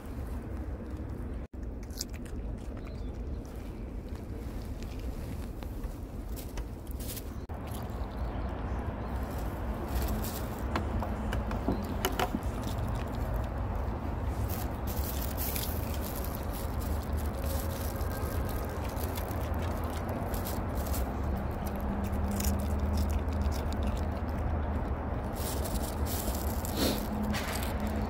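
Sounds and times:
low background rumble: 0.0 - 28.0
dog crunching cucumber: 1.0 - 5.1, 7.4 - 28.0
plastic bag crinkling: 14.4 - 24.3, 25.2 - 28.0.

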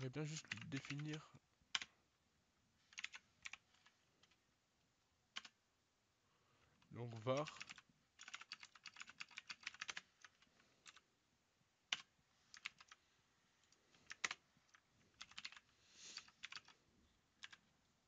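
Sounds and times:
keyboard typing: 0.0 - 2.0, 2.9 - 4.4, 5.3 - 5.6, 7.1 - 11.0, 11.9 - 13.0, 13.9 - 17.8
hard key presses: 2.9 - 4.4, 7.2 - 11.0, 11.9 - 13.0, 14.0 - 14.4, 15.1 - 16.8, 17.4 - 17.7.

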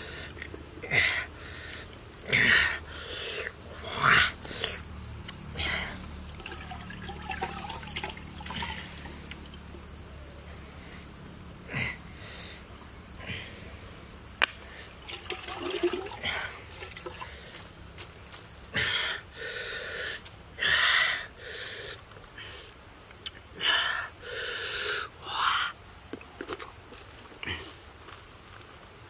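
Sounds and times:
breathy hisses: 0.0 - 4.9, 5.5 - 6.7, 10.6 - 14.0, 18.7 - 22.8, 23.6 - 25.8.

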